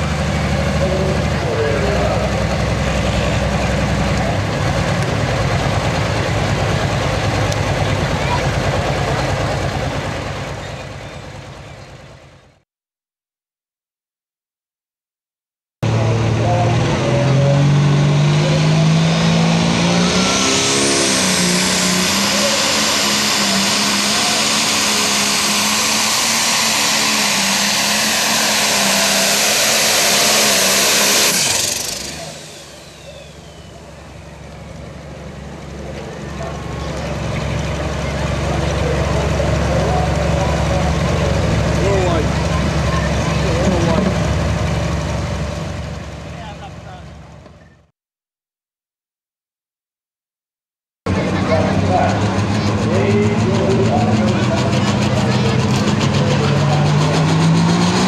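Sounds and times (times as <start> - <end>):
diesel tractor engine idling: 0.0 - 12.6, 31.4 - 47.9, 51.1 - 57.0.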